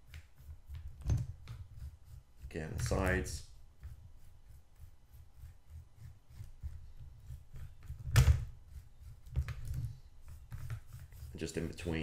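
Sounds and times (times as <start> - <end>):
brush scratching on plastic: 0.0 - 12.0.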